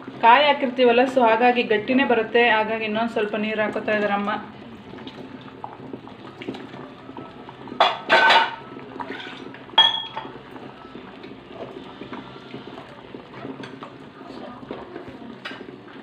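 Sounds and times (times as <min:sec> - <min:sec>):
ladle scraping and knocking pan: 0:07.8 - 0:10.0.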